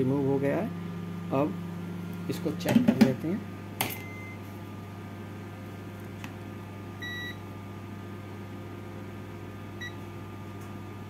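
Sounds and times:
steady low hum: 0.0s - 11.0s
multimeter beep: 4.0s - 4.4s, 7.0s - 7.4s, 9.8s - 10.0s.

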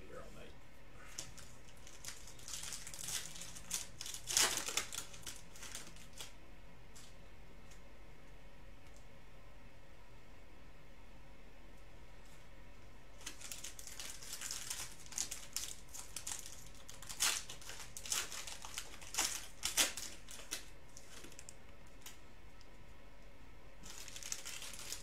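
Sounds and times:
foil wrappers tearing and crinkling: 1.1s - 6.4s, 13.2s - 22.2s, 23.8s - 25.0s.

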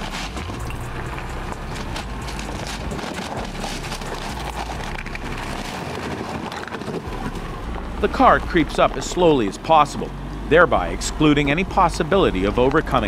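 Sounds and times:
car engine running low: 0.0s - 13.0s
tyres crunching over gravel: 0.0s - 13.0s.

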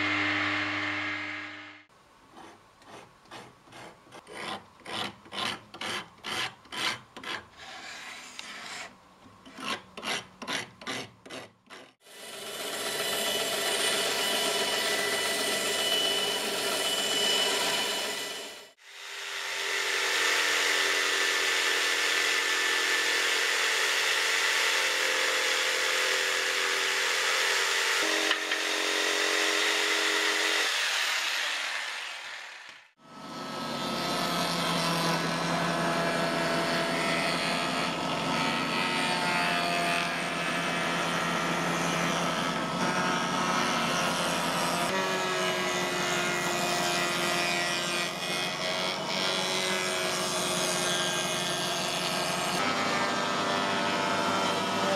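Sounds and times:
jigsaw cutting wood: 10.8s - 54.9s
router bit cutting wood: 12.0s - 54.9s.

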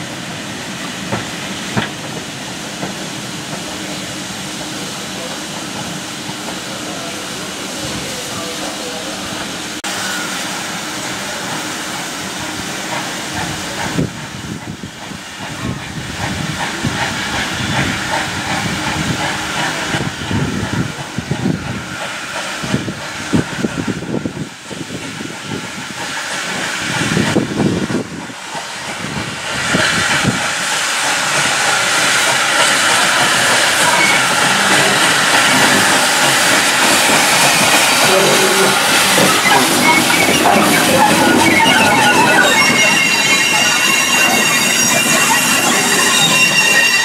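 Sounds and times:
low irregular locomotive beats: 0.0s - 47.0s
steam hissing: 0.0s - 47.0s.

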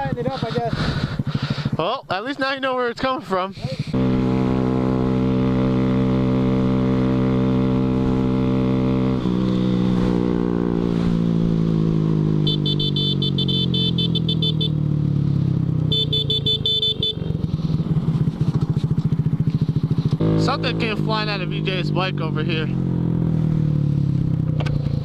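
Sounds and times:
motorcycle engine revving and chugging: 0.0s - 25.0s.

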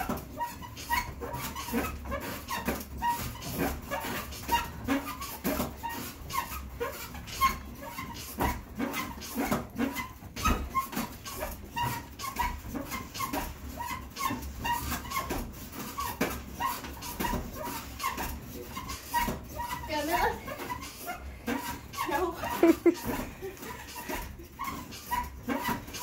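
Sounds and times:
elliptical trainer squeaking and knocking: 0.0s - 26.0s.

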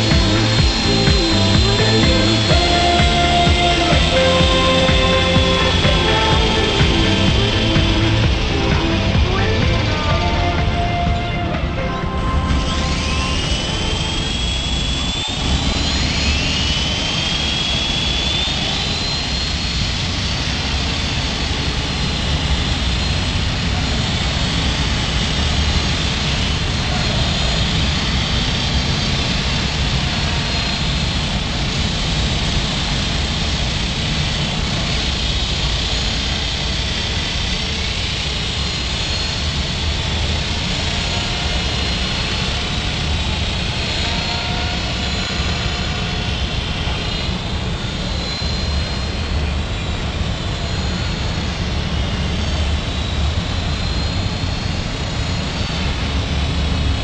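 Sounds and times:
rc helicopter rotor whine: 0.0s - 57.0s.

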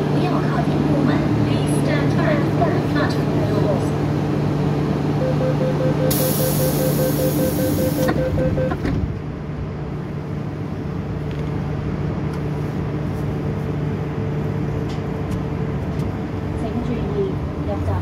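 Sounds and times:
train humming: 0.0s - 18.0s
rapid warning beeps: 5.2s - 8.8s.

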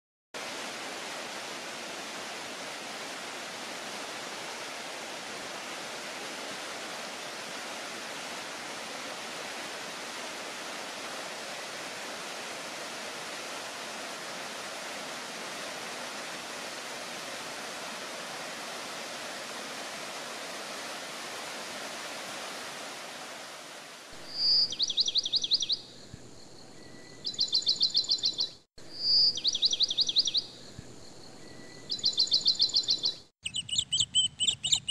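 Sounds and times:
small waterfall rushing: 0.4s - 25.7s
bird singing high trills: 24.3s - 34.9s.

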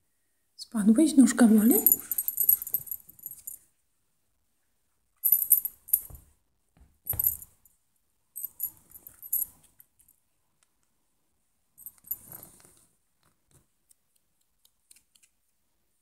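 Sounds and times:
small bell jingling: 1.6s - 3.6s, 5.2s - 6.2s, 7.1s - 7.6s, 8.4s - 9.6s, 11.8s - 12.3s.

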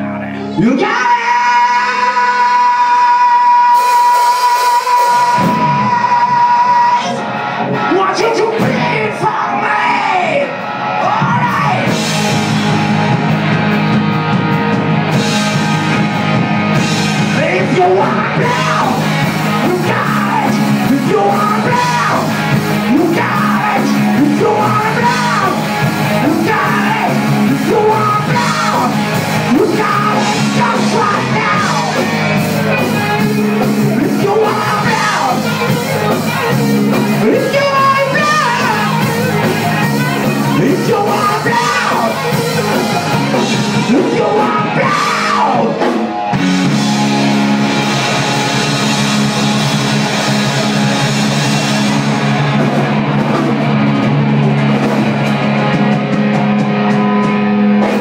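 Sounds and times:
live rock band playing: 0.0s - 58.0s
person yelling singing: 0.2s - 12.1s, 17.2s - 46.8s.

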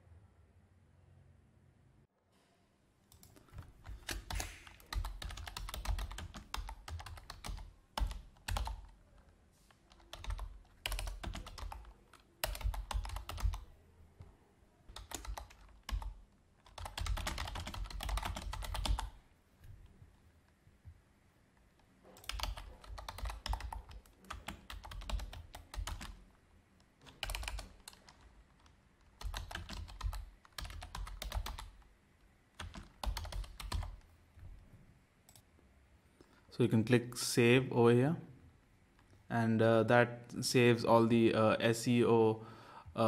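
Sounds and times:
typing on computer keyboard: 3.1s - 9.0s, 9.9s - 13.8s, 14.9s - 19.2s, 22.2s - 26.2s, 27.0s - 31.8s, 32.6s - 34.1s.

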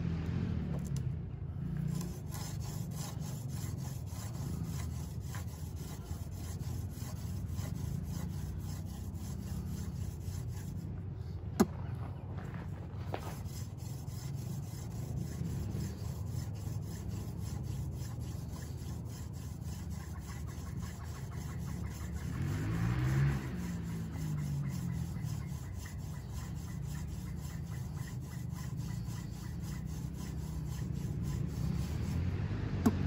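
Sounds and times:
passing vehicle: 0.0s - 33.0s
wooden spindle grinding in notch: 1.7s - 10.9s, 13.1s - 33.0s.

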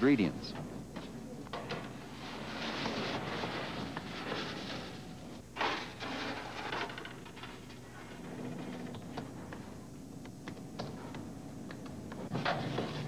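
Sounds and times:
low steady machine hum: 0.0s - 13.0s.

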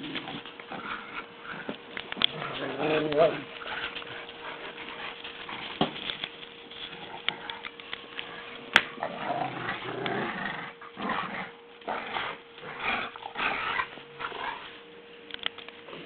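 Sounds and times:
dogs growling in play: 0.0s - 14.8s.

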